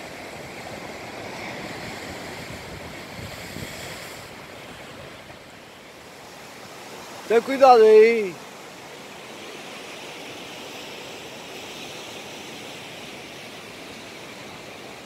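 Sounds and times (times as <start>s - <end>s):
wind on microphone: 0.0s - 5.5s
surf washing against rocks: 0.0s - 15.0s.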